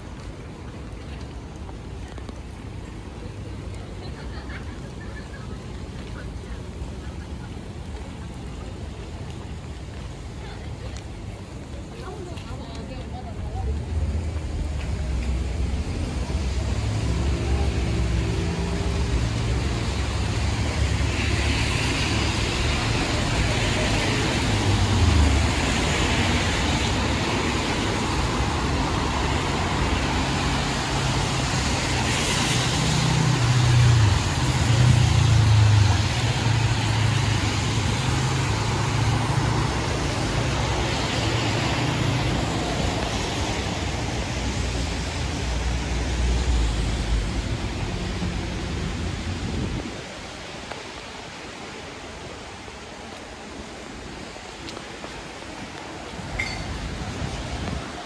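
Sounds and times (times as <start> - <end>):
tyres hissing on wet pavement: 0.0 - 58.0
car engines passing: 13.2 - 58.0.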